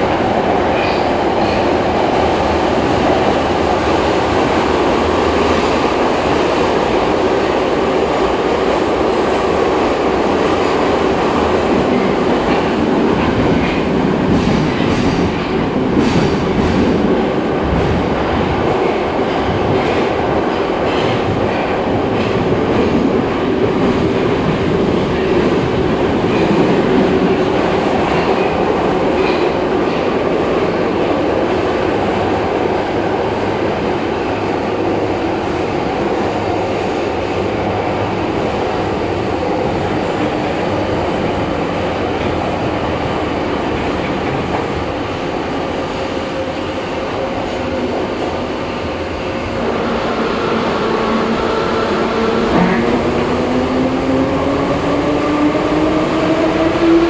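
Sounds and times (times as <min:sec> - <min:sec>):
subway car rumbling through tunnel: 0:00.0 - 0:57.0.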